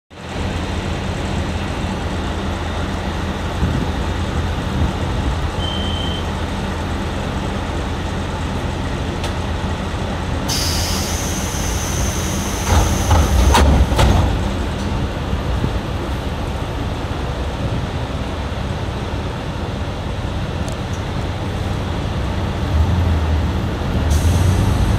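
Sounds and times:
diesel railcar engine idling: 0:00.1 - 0:24.9
short high beep: 0:05.6 - 0:06.3
compressed air hiss: 0:10.5 - 0:13.1.

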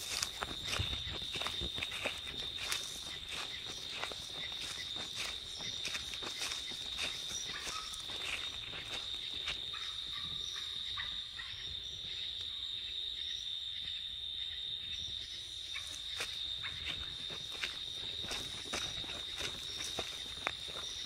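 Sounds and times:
footsteps in leaf litter: 0:00.0 - 0:09.9, 0:15.9 - 0:21.0
night insects droning: 0:00.0 - 0:21.0.

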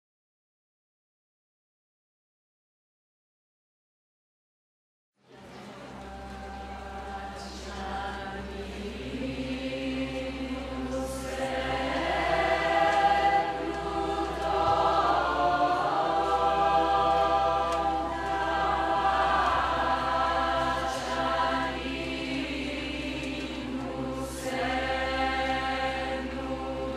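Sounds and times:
choir singing held notes: 0:05.3 - 0:26.9.

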